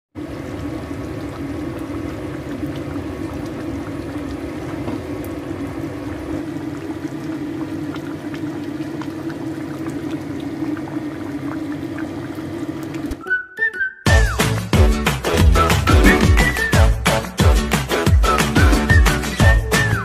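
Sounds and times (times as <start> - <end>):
sauce bubbling in a pan: 0.2 - 13.1.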